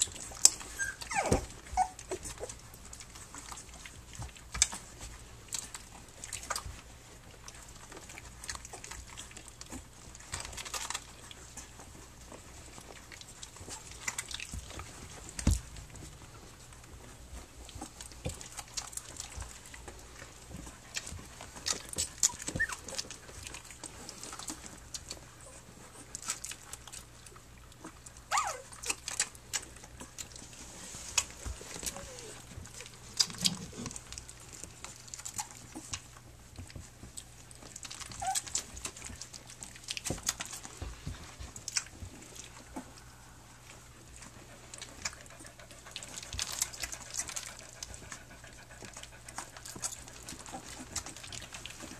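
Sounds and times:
puppies sucking and smacking: 0:00.0 - 0:51.9
puppy squeaks: 0:00.1 - 0:02.5, 0:22.0 - 0:23.1, 0:28.3 - 0:29.3, 0:31.7 - 0:32.8, 0:38.0 - 0:38.8.

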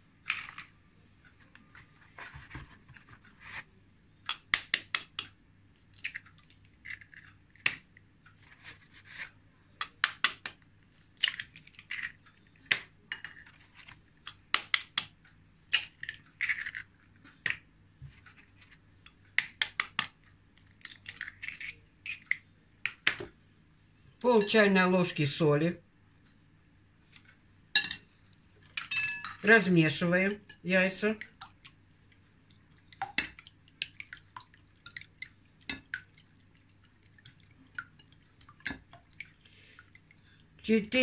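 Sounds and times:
knife tapping eggshells: 0:04.3 - 0:05.3
eggshell crackling: 0:04.3 - 0:09.2, 0:18.3 - 0:23.0.

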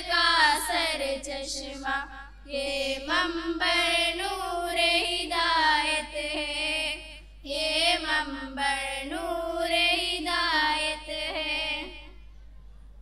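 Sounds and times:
girls singing into a microphone: 0:00.0 - 0:12.2.

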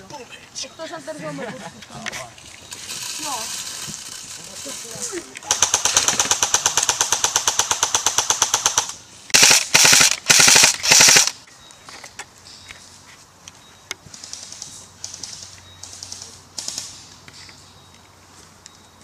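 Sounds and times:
airsoft guns firing bursts: 0:05.4 - 0:11.4, 0:14.2 - 0:17.1.

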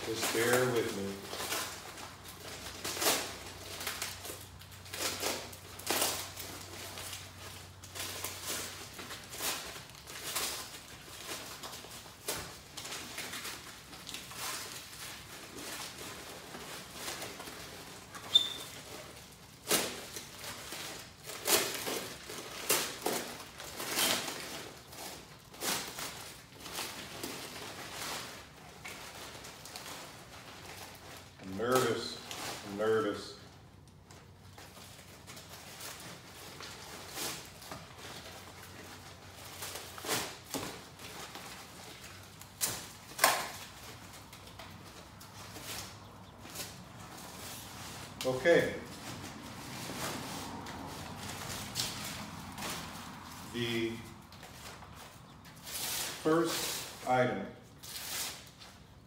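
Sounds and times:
packing paper crinkling: 0:00.0 - 0:59.0.

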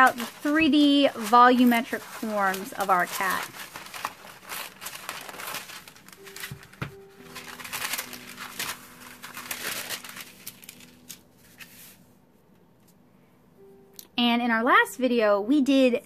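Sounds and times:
scissors cutting paper: 0:00.0 - 0:11.2
paper rustling and crinkling: 0:00.0 - 0:12.1.

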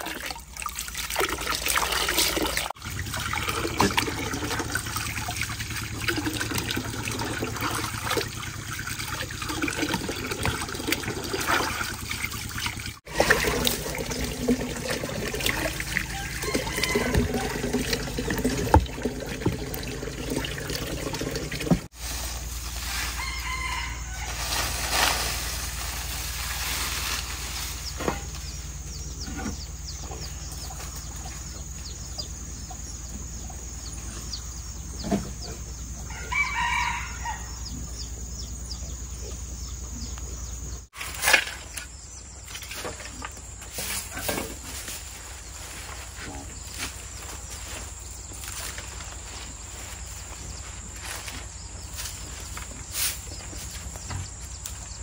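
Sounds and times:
rooster crowing: 0:15.9 - 0:17.7, 0:23.0 - 0:24.6, 0:36.0 - 0:37.7.

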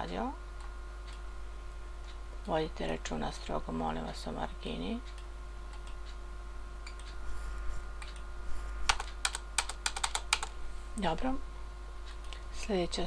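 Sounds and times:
faint steady hum: 0:00.0 - 0:13.0
computer keyboard keystrokes: 0:08.9 - 0:10.5.

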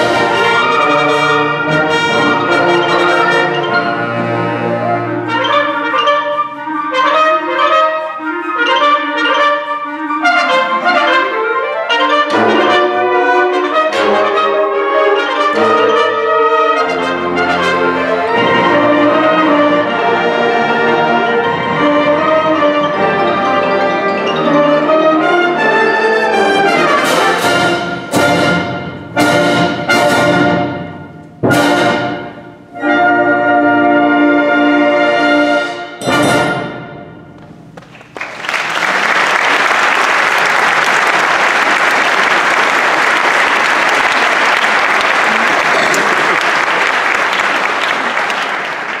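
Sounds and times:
wind ensemble chords: 0:00.0 - 0:37.8
audience applause: 0:37.8 - 0:49.0.

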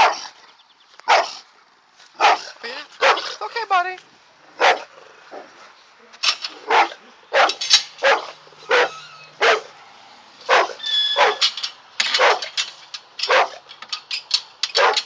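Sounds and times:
dog barking: 0:00.0 - 0:00.2, 0:01.1 - 0:01.4, 0:02.2 - 0:03.4, 0:04.6 - 0:04.9, 0:06.7 - 0:09.7, 0:10.5 - 0:11.4, 0:12.2 - 0:12.5, 0:13.3 - 0:13.6, 0:14.8 - 0:15.0.

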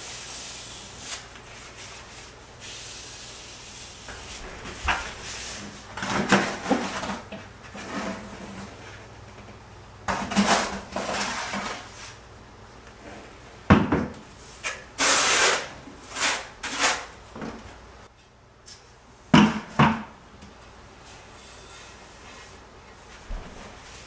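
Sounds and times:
trowel scraping mortar: 0:14.7 - 0:17.1.

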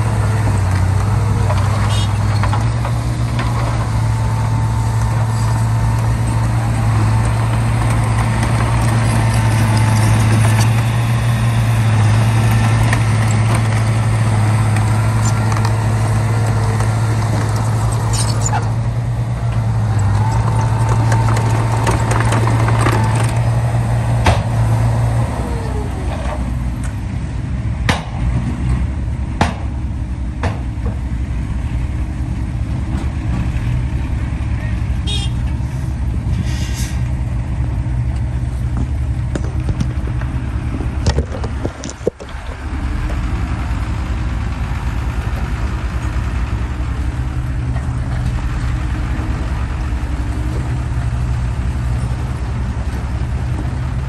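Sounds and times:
diesel engines droning: 0:00.0 - 0:54.0
sharp knocks and clanks: 0:29.4 - 0:29.8, 0:30.4 - 0:31.1.

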